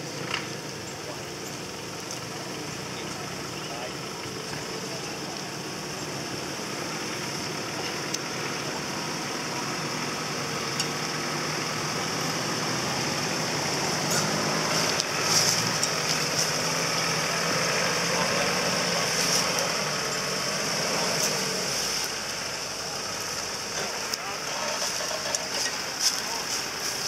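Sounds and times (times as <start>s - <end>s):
engine running at low revs: 0.0s - 27.0s.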